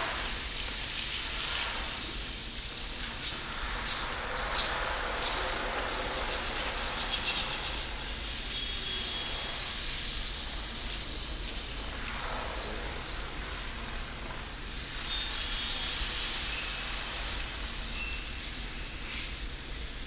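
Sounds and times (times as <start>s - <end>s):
faint ringing tones: 8.4s - 9.8s, 14.9s - 20.0s.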